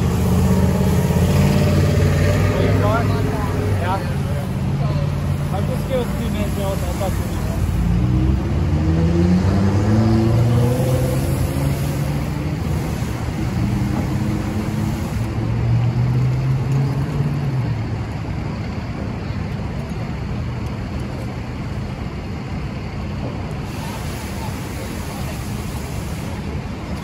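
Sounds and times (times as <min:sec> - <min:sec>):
fire hose spraying water: 0:00.0 - 0:08.4, 0:10.3 - 0:15.6, 0:23.4 - 0:27.0
vehicle engine humming: 0:00.0 - 0:27.0.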